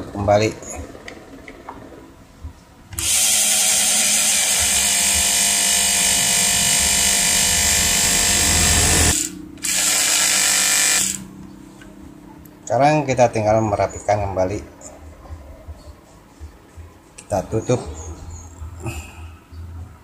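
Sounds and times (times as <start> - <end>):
electric mixer motor whining: 3.0 - 11.3.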